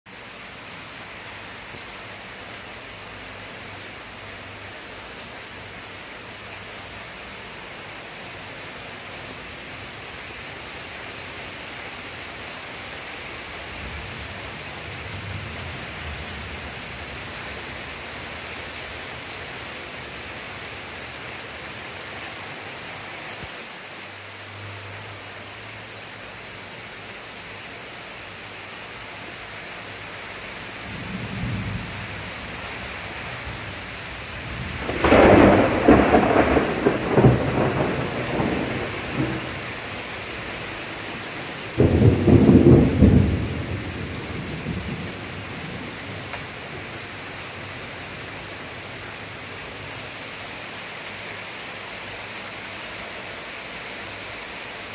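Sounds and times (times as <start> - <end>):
heavy rain falling: 0.1 - 54.9
thunder rumbling: 30.9 - 47.0
loud thunderclap: 34.5 - 39.6, 41.8 - 46.4.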